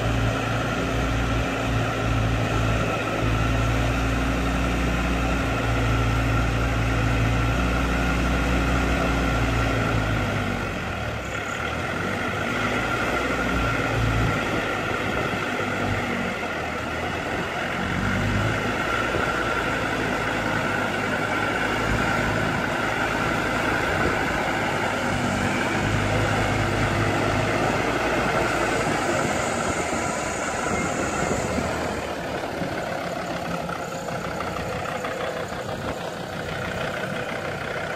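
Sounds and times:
vehicle engine running: 0.0s - 37.9s
winch whine: 19.0s - 37.9s.

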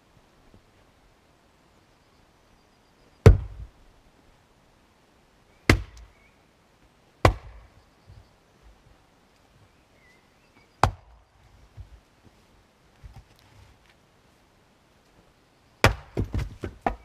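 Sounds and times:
axe striking firewood: 3.2s - 3.7s, 5.7s - 6.1s, 7.2s - 7.7s, 10.8s - 11.2s, 15.8s - 17.0s.

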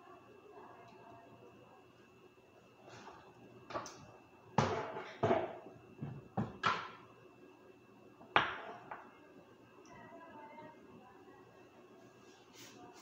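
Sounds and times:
objects knocking on hard surface: 4.6s - 7.0s.

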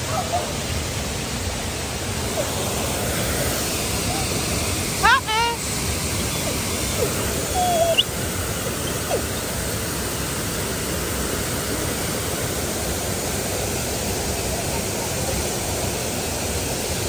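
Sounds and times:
waterfall rushing into pool: 0.0s - 17.0s.

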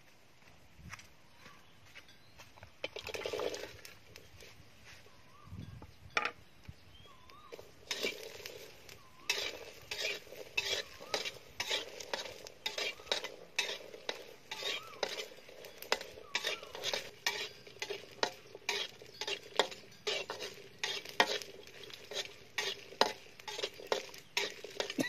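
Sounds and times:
food stirred and scraped: 2.8s - 4.6s, 7.3s - 25.0s
food sizzling in frying pan: 7.3s - 25.0s
utensil clinking against pan: 7.6s - 25.0s.

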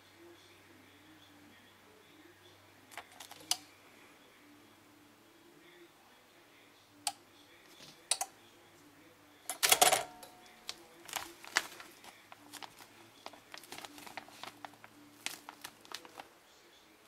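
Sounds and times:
plastic bag rustling: 10.6s - 16.3s.

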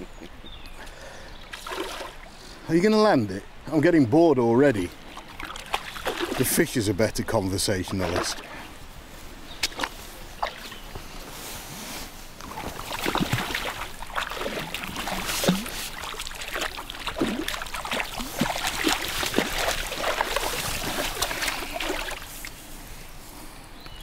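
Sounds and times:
fish splashing at water surface: 5.1s - 6.6s, 12.4s - 22.6s.

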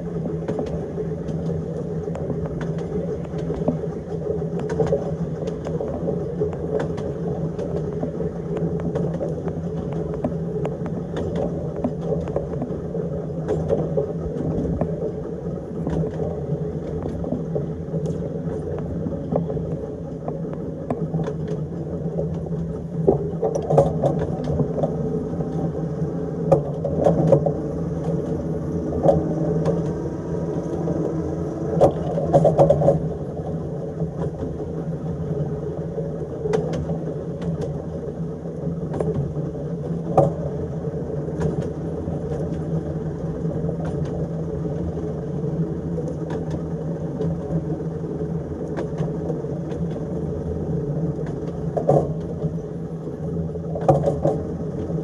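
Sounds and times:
tram motor hum: 22.8s - 37.6s
tram rumble: 23.1s - 35.2s.

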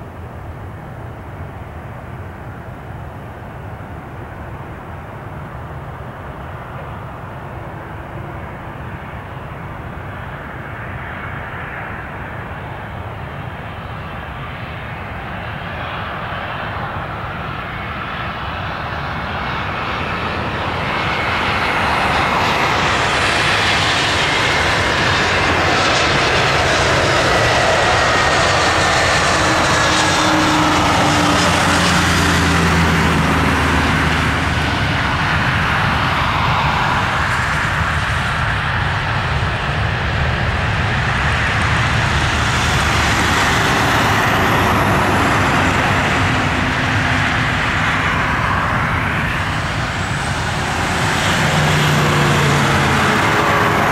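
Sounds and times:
high engine whine: 0.0s - 53.9s
jet airliner engines: 0.0s - 53.9s.

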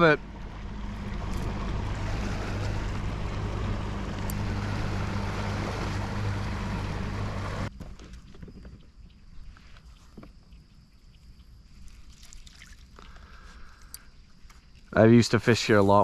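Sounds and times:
outboard motor humming: 0.0s - 7.8s
water noise: 0.0s - 16.0s.

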